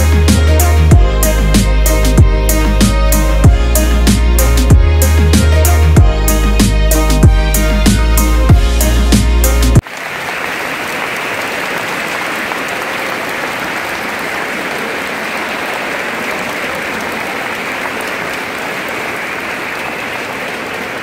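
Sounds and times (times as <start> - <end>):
music: 0.0 - 9.8
audience applause: 9.8 - 21.0.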